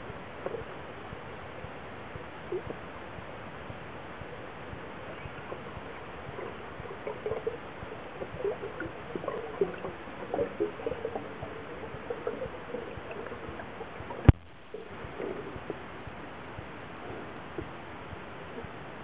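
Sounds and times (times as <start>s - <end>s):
air bubbles gurgling underwater: 5.0s - 18.0s.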